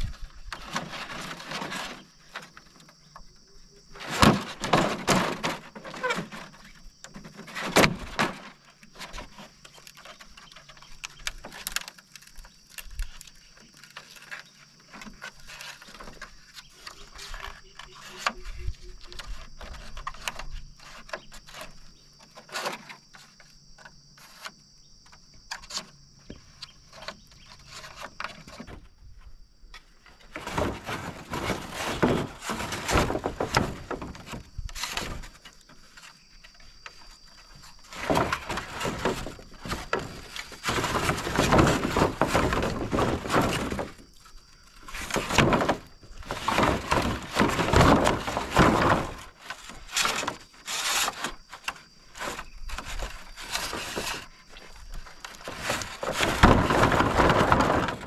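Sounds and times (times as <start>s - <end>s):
bamboo poles knocking and clattering: 0.0s - 58.0s.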